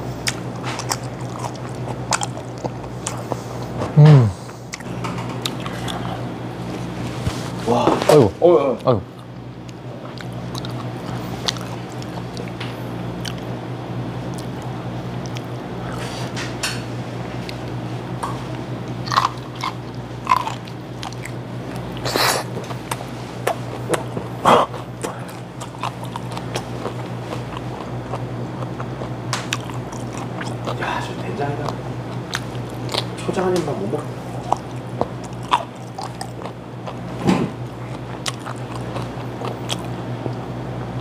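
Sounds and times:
steady low hum: 0.0 - 41.0
chewing and biting: 0.2 - 3.9, 4.5 - 7.1, 9.1 - 13.6, 14.2 - 16.1, 17.4 - 33.2, 34.2 - 40.5.

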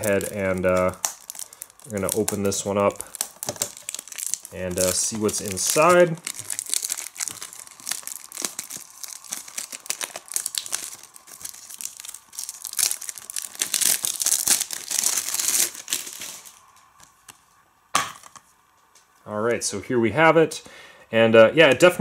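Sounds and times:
plastic wrap tearing and crinkling: 0.0 - 17.4.

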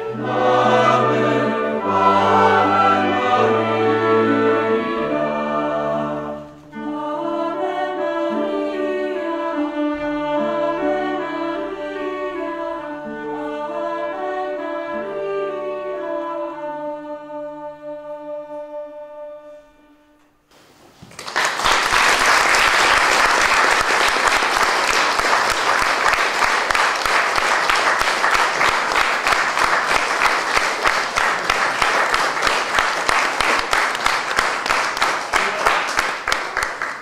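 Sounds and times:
choir with strings: 0.0 - 19.7
audience applause: 21.0 - 37.0.

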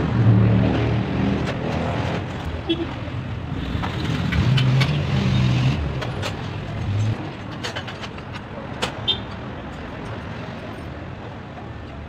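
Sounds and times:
vehicle engine rumble: 0.0 - 8.8.

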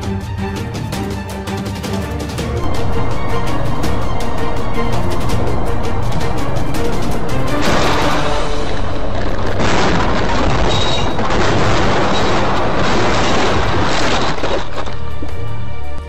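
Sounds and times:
loud car crash: 9.5 - 14.8.

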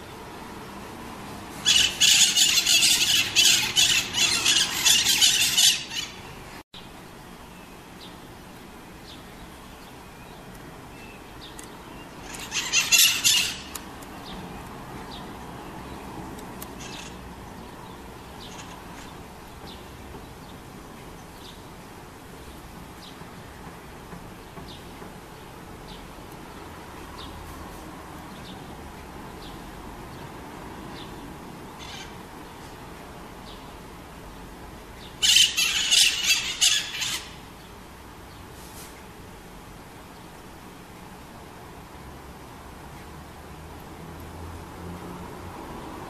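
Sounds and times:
parakeets screeching: 1.6 - 6.4, 12.2 - 13.8, 16.8 - 17.2, 18.4 - 19.1, 31.8 - 32.2, 35.2 - 37.4.

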